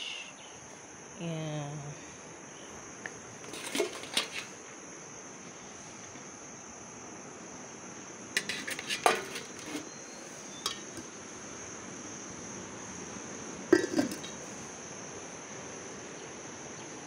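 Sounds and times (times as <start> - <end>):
insects chirring: 0.0 - 17.0
pot lid and dishes clattering: 3.5 - 4.5, 8.4 - 10.0, 10.6 - 11.1, 13.7 - 14.4.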